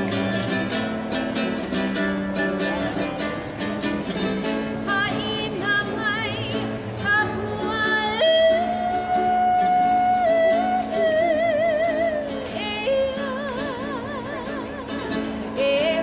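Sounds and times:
strummed ukulele: 0.0 - 16.0
woman singing with vibrato: 4.8 - 16.0.

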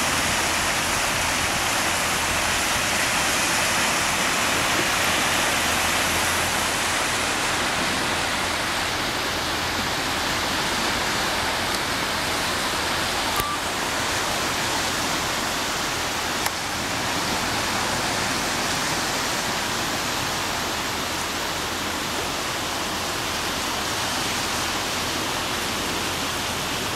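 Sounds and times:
waves breaking on shore: 0.0 - 26.9.

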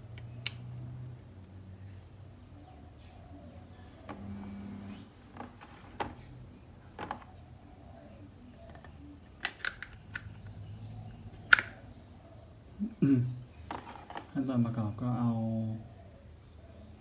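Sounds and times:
pistol handling noises: 0.1 - 1.3, 8.6 - 10.6, 11.4 - 11.8.

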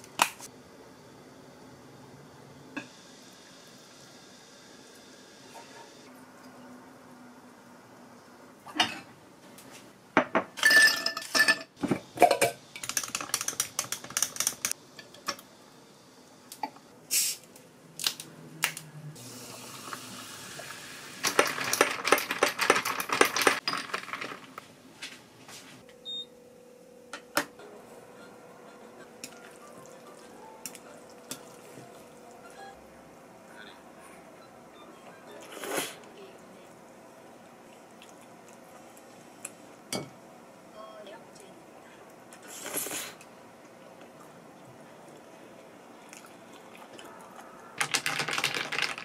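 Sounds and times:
dishes and glassware clinking: 10.2 - 12.6.

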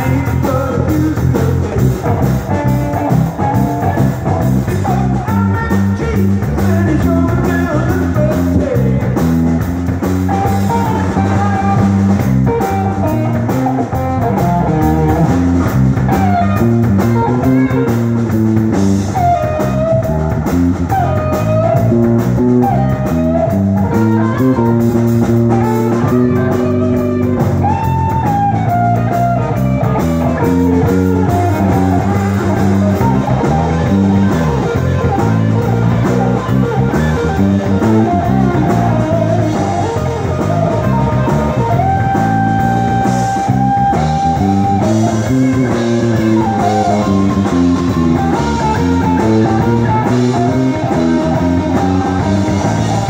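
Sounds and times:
drum kit: 0.0 - 53.0
electric guitar: 0.0 - 53.0.

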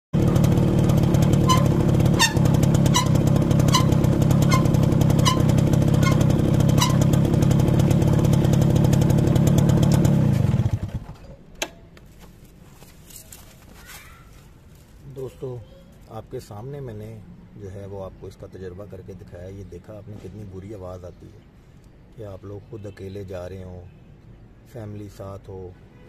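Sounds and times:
drum brake squeaking: 0.2 - 8.1
motorcycle engine running: 0.2 - 11.2.

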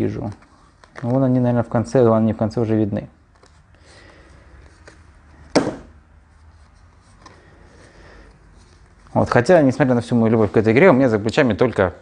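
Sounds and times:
cards rustling and ticking: 0.1 - 1.5.

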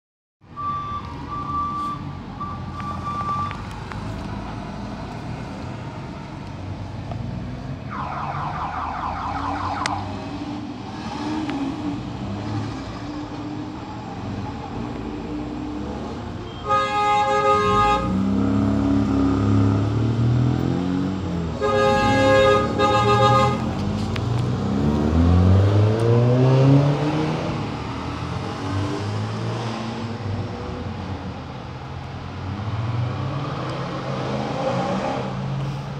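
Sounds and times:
short beeps: 0.6 - 3.6
cars driving past: 0.6 - 35.9
car horn blaring: 16.4 - 18.3, 21.6 - 23.7.

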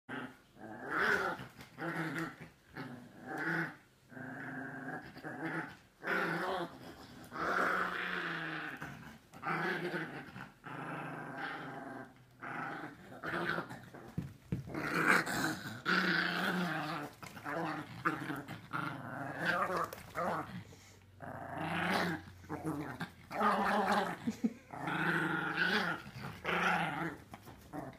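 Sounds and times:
dogs growling: 0.1 - 27.9.

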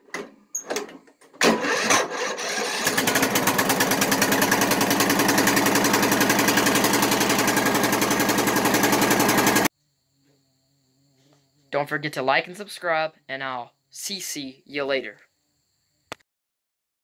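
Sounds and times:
lawn mower engine cranking and running: 0.1 - 9.7.

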